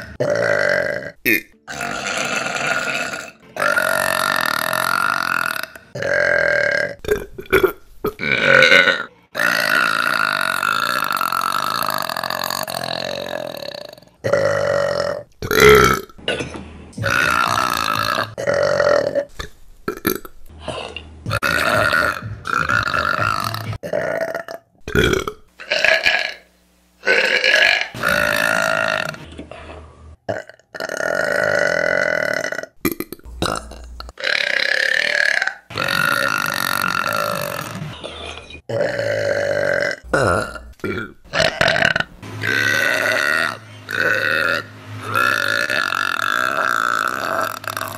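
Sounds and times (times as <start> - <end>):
woman burping: 0.0 - 19.3, 19.9 - 26.4, 38.7 - 44.6.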